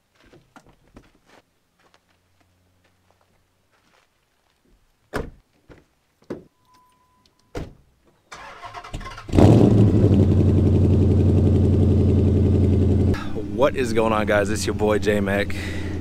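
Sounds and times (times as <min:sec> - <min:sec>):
brief chime: 0:06.5 - 0:07.5
car starter cranking: 0:08.3 - 0:09.9
car engine starting and idling: 0:08.3 - 0:16.0.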